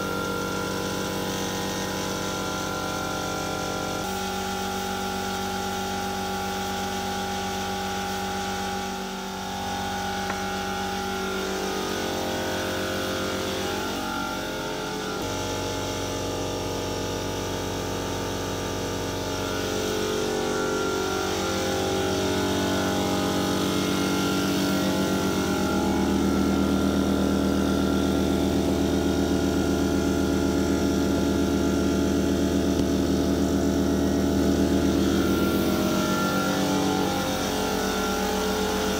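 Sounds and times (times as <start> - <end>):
electric machinery humming: 0.0 - 38.9.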